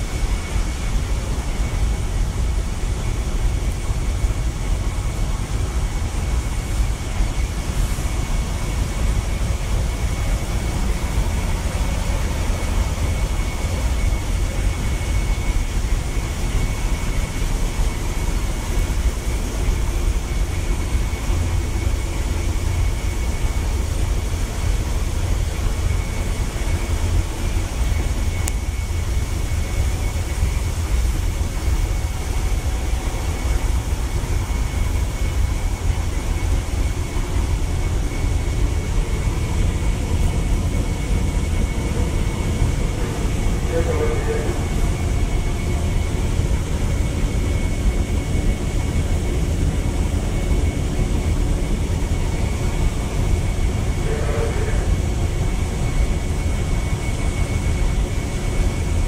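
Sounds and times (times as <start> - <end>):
engine room machinery drone: 0.0 - 59.0
thin high whine: 0.0 - 59.0.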